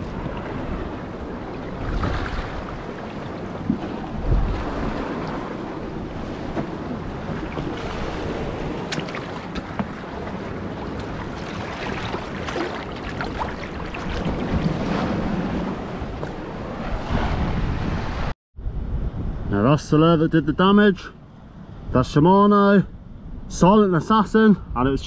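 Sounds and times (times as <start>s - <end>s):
sea water sloshing among boulders: 0.0s - 17.3s
wind buffeting microphone: 0.0s - 20.4s
small sharp splashes: 8.8s - 9.7s.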